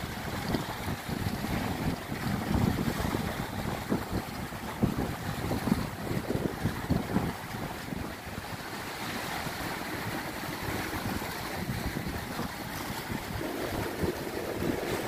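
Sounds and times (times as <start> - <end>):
surf washing on beach: 0.0 - 15.0
wind on microphone: 0.0 - 15.0.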